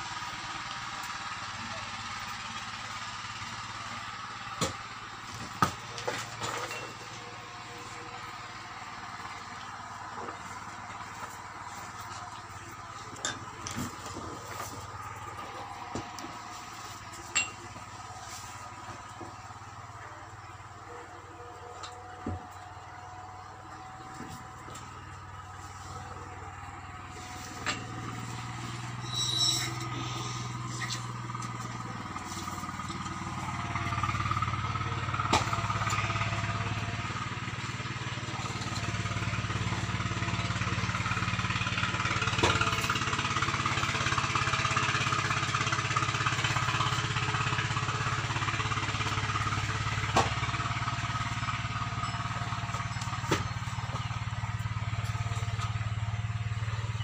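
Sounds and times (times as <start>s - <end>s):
low engine-like hum: 0.0s - 57.0s.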